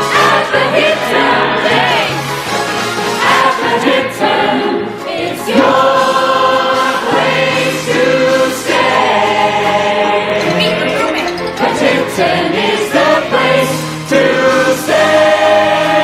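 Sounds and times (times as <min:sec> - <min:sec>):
group of voices singing: 0:00.0 - 0:02.4, 0:03.0 - 0:16.0
backing track music: 0:00.0 - 0:16.0.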